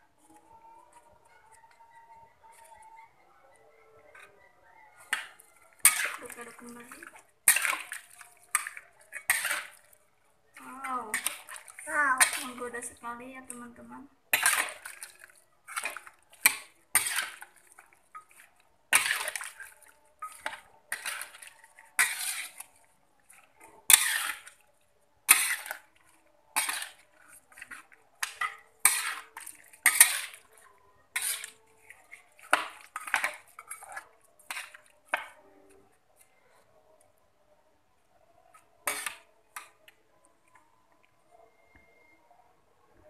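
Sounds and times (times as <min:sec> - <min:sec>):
metal spatula scraping wok: 0:05.0 - 0:10.0, 0:10.6 - 0:24.6, 0:25.3 - 0:35.4, 0:38.8 - 0:39.7.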